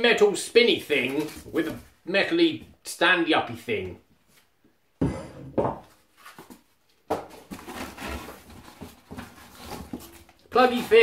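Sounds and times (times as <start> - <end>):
cardboard packaging rustling: 0.7 - 2.0, 7.3 - 11.0.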